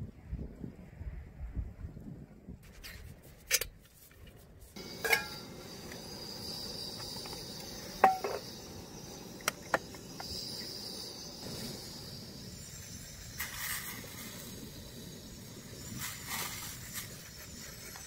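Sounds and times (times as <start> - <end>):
insects chirring: 4.8 - 18.0
dishes clinking: 5.0 - 5.4, 8.0 - 8.4.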